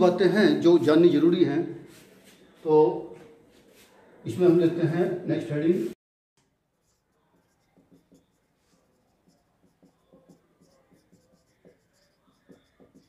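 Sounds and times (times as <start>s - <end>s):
marker pen writing on whiteboard: 6.4s - 13.0s.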